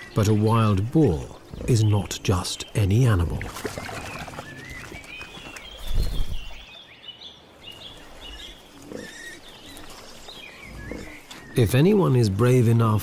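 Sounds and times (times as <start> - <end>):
small birds chirping: 0.0 - 13.0
wild boar grunting: 10.6 - 11.5.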